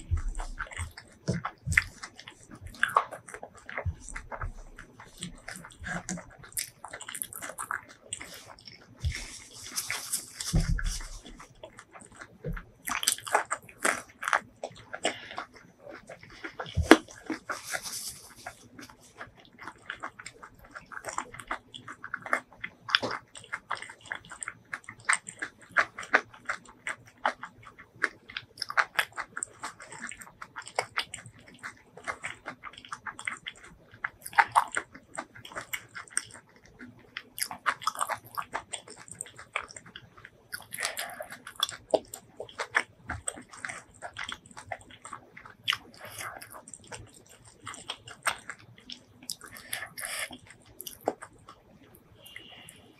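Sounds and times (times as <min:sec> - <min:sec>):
chewing and mouth clicks: 0:00.0 - 0:52.9.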